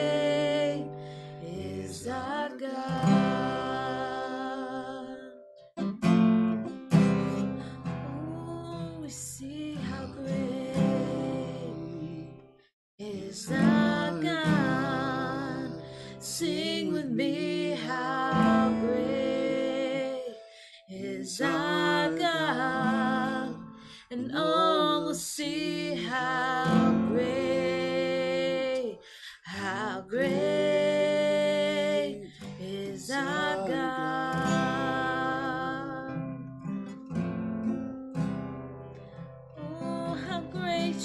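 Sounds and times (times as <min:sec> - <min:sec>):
acoustic guitar strumming: 0:00.0 - 0:04.6, 0:05.6 - 0:09.2, 0:13.5 - 0:24.0, 0:25.8 - 0:29.0, 0:30.1 - 0:41.0
woman and man singing: 0:00.0 - 0:05.5, 0:07.2 - 0:36.5, 0:39.6 - 0:41.0.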